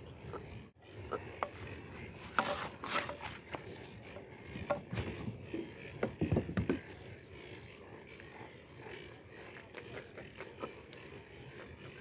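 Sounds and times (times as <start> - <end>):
taps and scrapes on plastic kayak: 2.2 - 4.0.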